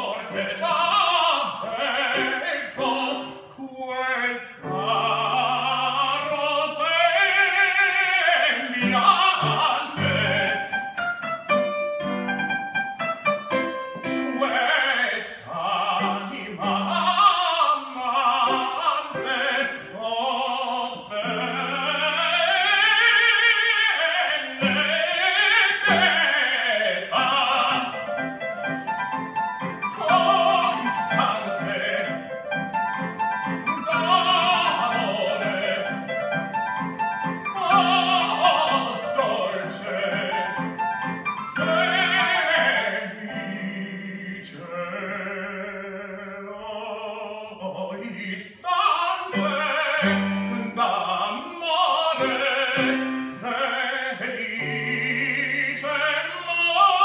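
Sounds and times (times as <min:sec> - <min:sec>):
man singing opera: 0:00.0 - 0:11.7, 0:13.4 - 0:57.0
keyboard playing piano: 0:08.8 - 0:14.8, 0:27.2 - 0:43.8, 0:52.1 - 0:53.4.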